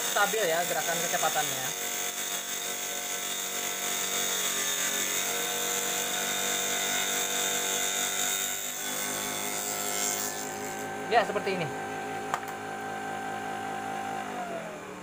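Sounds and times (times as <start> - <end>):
table saw cutting acrylic: 0.0 - 14.9.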